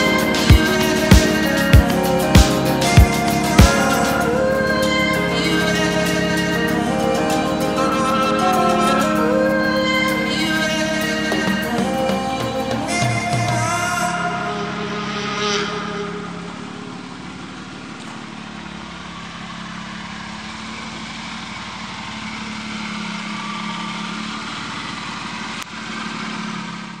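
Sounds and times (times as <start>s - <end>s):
car engine idling: 0.0s - 27.0s.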